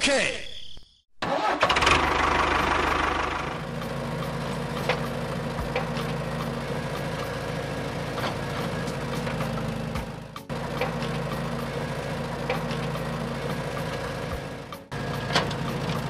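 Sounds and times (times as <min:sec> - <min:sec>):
engine idling with knock: 0:01.8 - 0:16.0.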